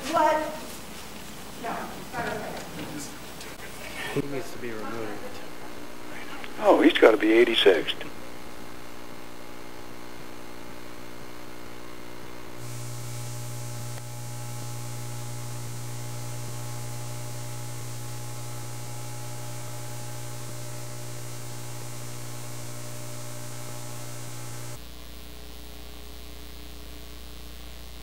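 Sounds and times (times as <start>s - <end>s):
audio hiss: 0.0s - 28.0s
electrical hum: 0.0s - 28.0s.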